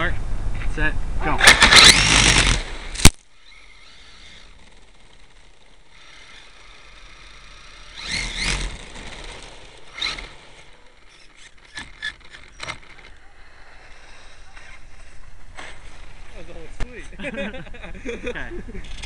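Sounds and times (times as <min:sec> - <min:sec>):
sharp clicks: 0:01.4 - 0:13.2
toy truck motor whine: 0:01.6 - 0:14.9.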